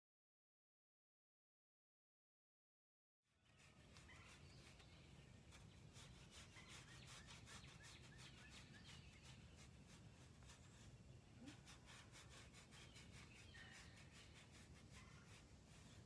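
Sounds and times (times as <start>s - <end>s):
bird chirping: 3.4s - 15.4s
brush scratching horse's coat: 3.5s - 16.0s.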